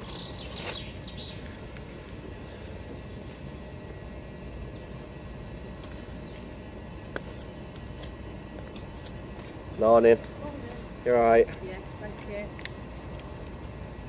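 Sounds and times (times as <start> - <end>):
small bird chirping: 0.0 - 1.6, 3.3 - 6.6
low outdoor rumble: 0.0 - 14.0.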